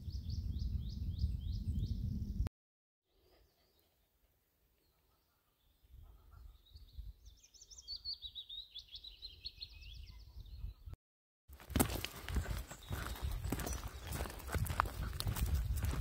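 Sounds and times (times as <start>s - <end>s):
footsteps on gravel: 11.5s - 16.0s.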